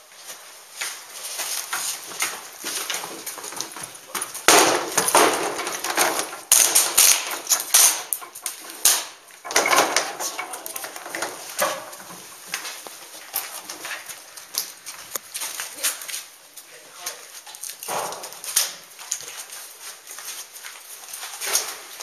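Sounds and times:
pellets striking hard surfaces: 0:02.2 - 0:12.9.

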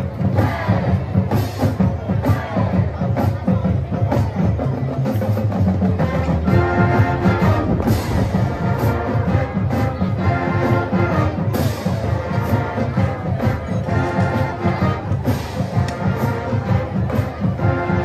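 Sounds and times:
drums and cymbal hits: 0:00.0 - 0:18.0
brass and woodwinds: 0:05.0 - 0:18.0.

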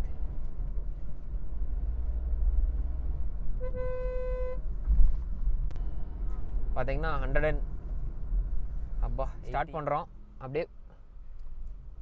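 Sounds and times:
engine and road rumble in car: 0:00.0 - 0:12.0
vehicle horn: 0:03.6 - 0:04.7.

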